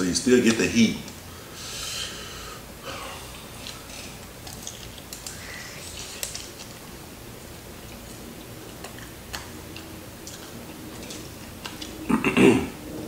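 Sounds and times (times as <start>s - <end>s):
crispy fried chicken crackling: 3.2s - 12.2s.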